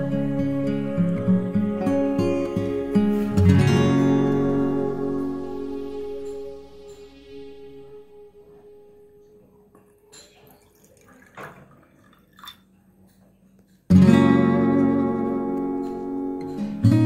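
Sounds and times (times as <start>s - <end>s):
acoustic guitar music: 0.0s - 10.5s, 13.9s - 17.0s
liquid splashing: 10.4s - 12.6s.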